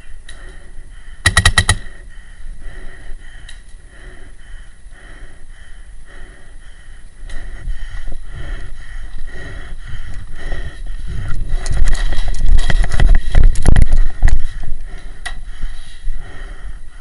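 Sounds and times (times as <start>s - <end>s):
paintball marker rapid shots: 1.2s - 2.0s.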